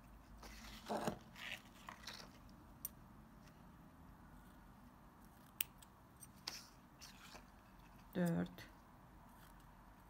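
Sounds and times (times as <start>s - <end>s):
ribbon rustling: 0.0s - 2.7s.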